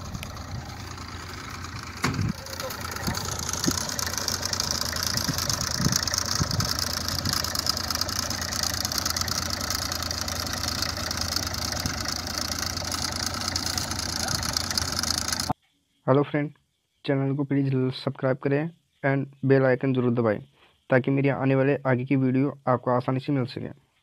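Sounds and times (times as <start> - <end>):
tractor diesel engine running: 0.0 - 15.6.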